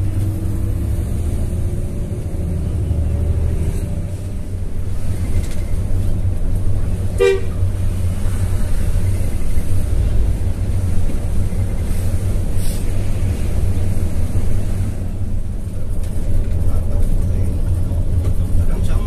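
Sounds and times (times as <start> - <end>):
bus engine and road rumble: 0.0 - 19.0
bus horn toot: 7.0 - 7.8.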